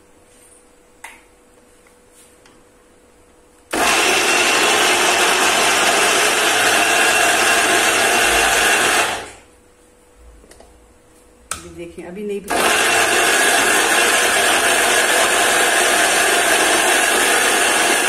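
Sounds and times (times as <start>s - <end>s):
electric mixer grinder running: 3.7s - 9.4s, 12.5s - 18.0s.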